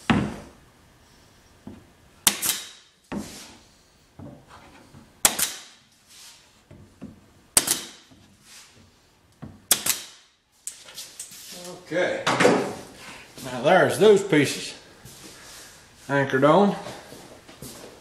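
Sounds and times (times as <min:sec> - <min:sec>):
pneumatic nailer shots with hiss: 0:02.2 - 0:03.0, 0:05.2 - 0:05.9, 0:07.6 - 0:08.1, 0:09.7 - 0:10.3.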